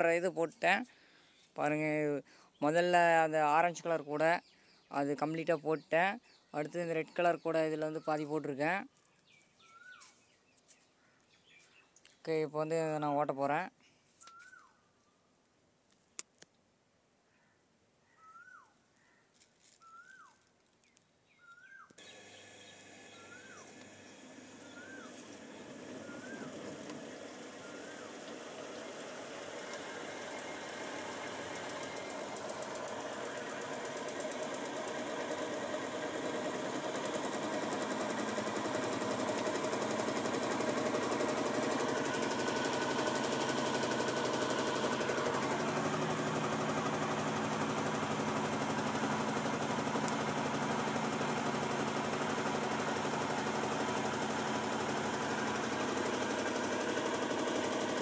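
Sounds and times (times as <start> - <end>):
spin dryer drum spinning: 22.0 - 58.0.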